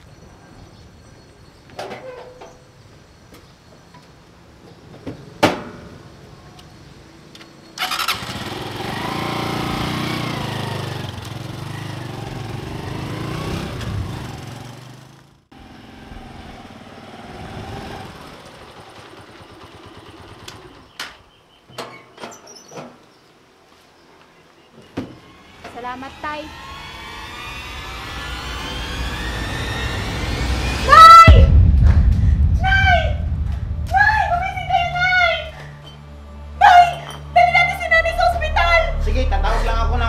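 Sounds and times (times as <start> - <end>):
motorcycle engine revving: 7.8 - 21.0, 25.3 - 30.9.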